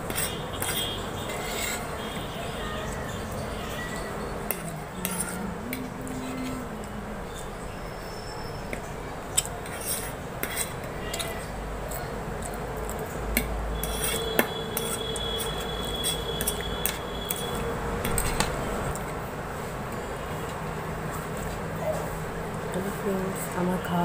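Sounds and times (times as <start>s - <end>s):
fork clinking and scraping on plate: 13.8s - 17.5s.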